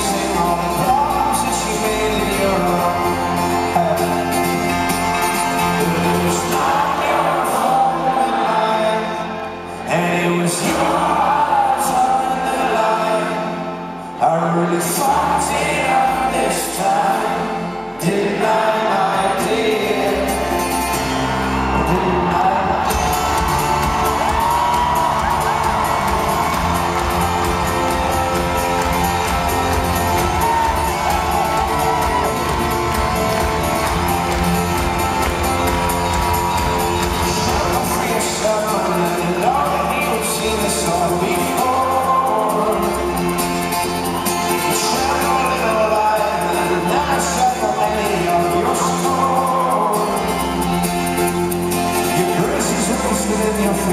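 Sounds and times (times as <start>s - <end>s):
band playing fast driving beat: 0.0s - 9.3s, 19.5s - 53.9s
man singing: 0.0s - 23.3s, 23.9s - 53.9s
acoustic guitars: 0.0s - 53.9s
upright bass: 14.4s - 53.9s
crowd whooping: 21.0s - 42.4s.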